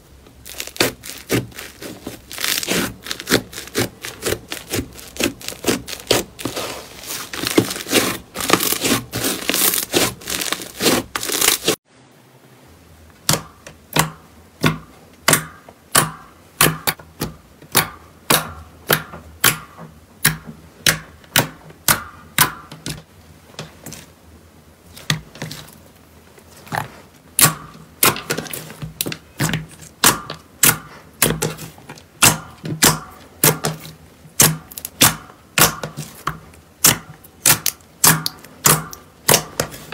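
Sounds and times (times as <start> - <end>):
slime crackling and tearing: 0.4 - 11.8, 33.4 - 36.2.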